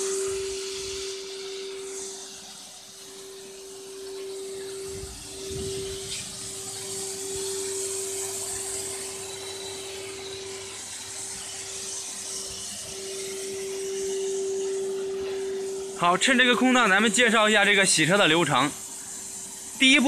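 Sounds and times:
vacuum cleaner running: 0.0 - 20.0.

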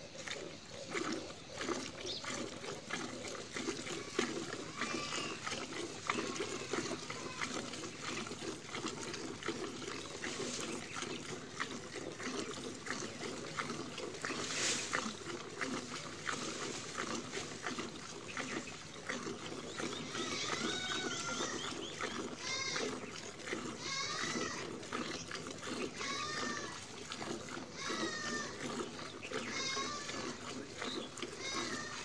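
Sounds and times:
milk squirting into metal bucket: 0.0 - 32.0
animal calling: 17.7 - 26.8, 27.7 - 32.0.

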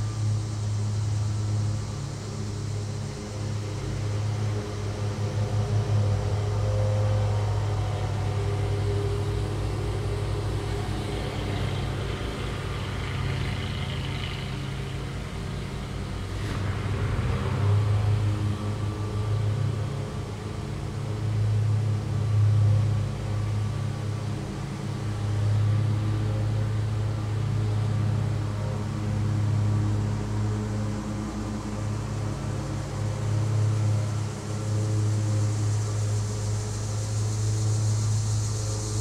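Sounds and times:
lawn mower engine running: 7.6 - 25.1.

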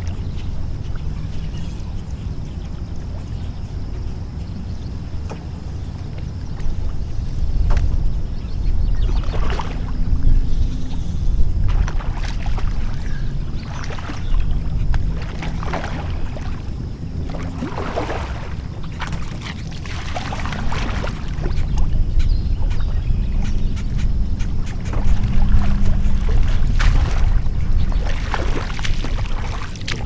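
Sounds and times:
steady low rumble: 0.0 - 30.0
fish splashing in water: 9.0 - 22.0, 24.4 - 30.0.

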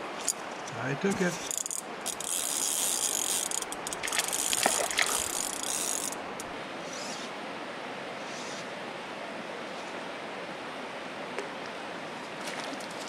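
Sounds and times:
river running: 0.0 - 13.0
fishing reel drag ratcheting: 1.4 - 6.5.

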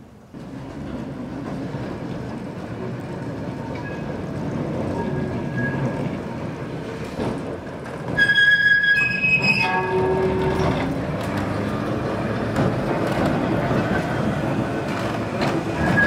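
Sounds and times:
tram wheels rumbling on rails: 0.0 - 16.0
tram wheels squealing: 3.5 - 16.0.

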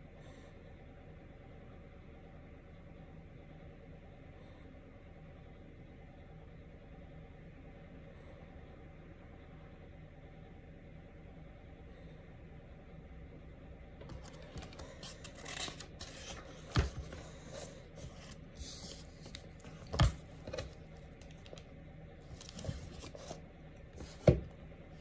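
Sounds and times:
book pages rustling: 14.0 - 21.7, 22.3 - 23.4, 24.0 - 24.5.

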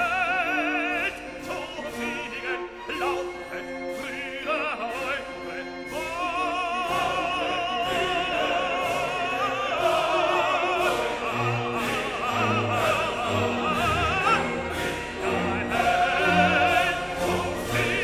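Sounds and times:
operatic singing with vibrato: 0.0 - 18.0
orchestral chords: 0.0 - 18.0.

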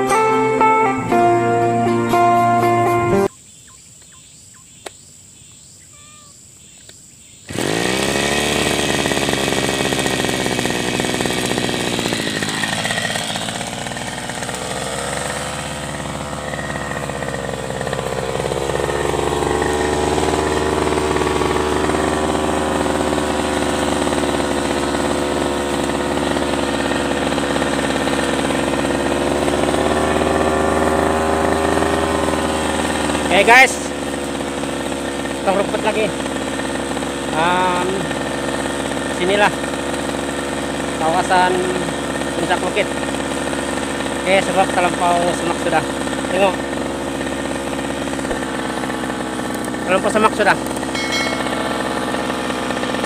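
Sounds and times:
brush cutter engine revving: 7.4 - 53.0
blade cutting grass: 7.5 - 53.0.

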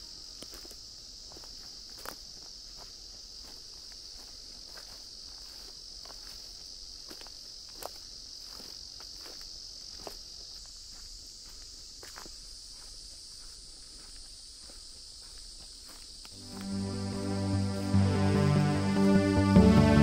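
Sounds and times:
insects trilling: 0.0 - 19.9.

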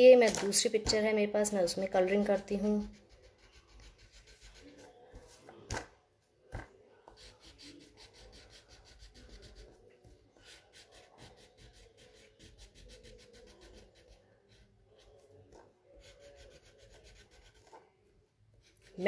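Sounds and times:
colouring tool rubbing on paper: 2.6 - 5.4, 7.0 - 17.8.

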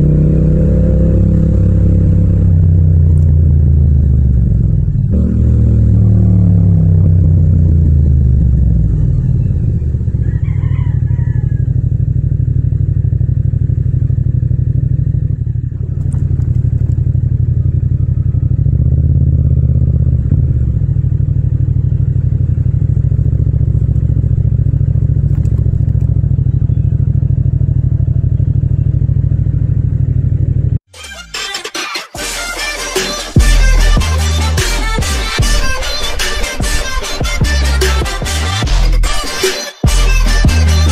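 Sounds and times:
motorcycle engine idling: 0.0 - 30.8.

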